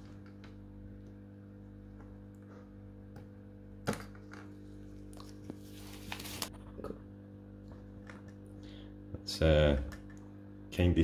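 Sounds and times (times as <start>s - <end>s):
steady low hum: 0.0s - 11.0s
gloves rustling: 4.8s - 6.5s.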